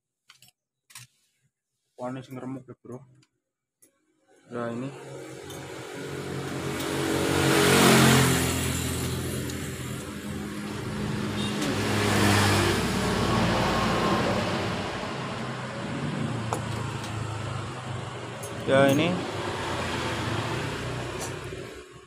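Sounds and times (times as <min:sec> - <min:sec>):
vehicle engine running: 0:05.1 - 0:22.0.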